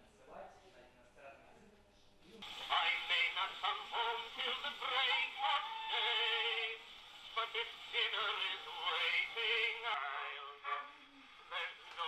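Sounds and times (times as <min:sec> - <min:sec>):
phonograph recording of man singing: 0:02.4 - 0:12.0.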